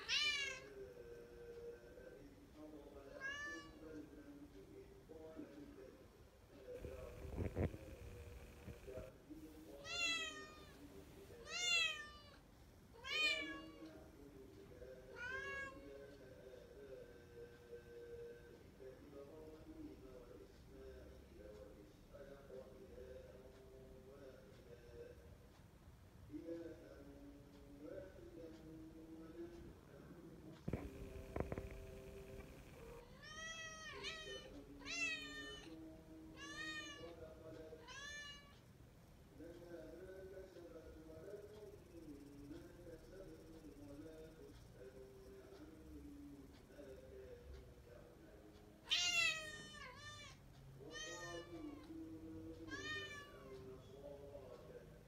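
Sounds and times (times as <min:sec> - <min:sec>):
cat meowing: 0:00.0 - 0:00.7, 0:03.2 - 0:03.8, 0:09.8 - 0:10.8, 0:11.4 - 0:12.4, 0:13.0 - 0:13.8, 0:48.9 - 0:51.8.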